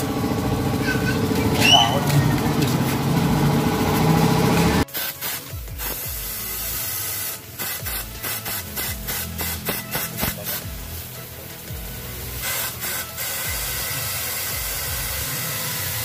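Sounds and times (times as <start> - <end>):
compressed air blow gun blasts: 0.7 - 16.0
loud steady air hiss: 2.8 - 16.0.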